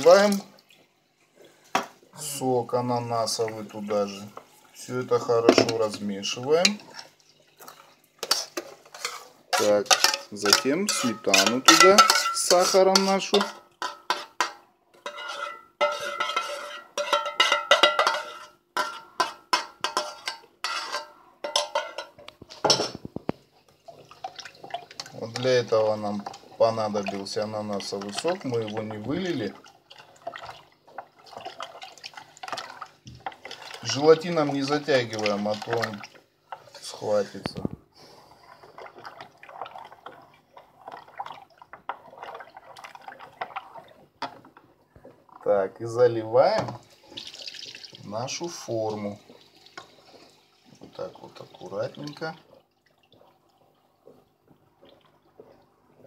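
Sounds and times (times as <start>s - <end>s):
liquid sloshing and dripping: 0.0s - 2.1s, 2.7s - 45.6s, 46.4s - 56.0s
metal spoon scraping enamel bowl: 8.2s - 22.8s.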